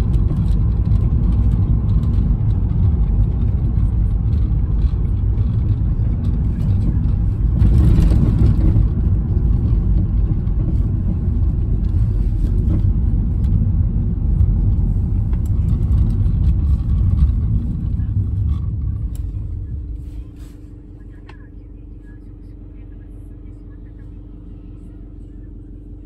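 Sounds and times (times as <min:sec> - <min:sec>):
car road and engine noise: 0:00.0 - 0:26.0.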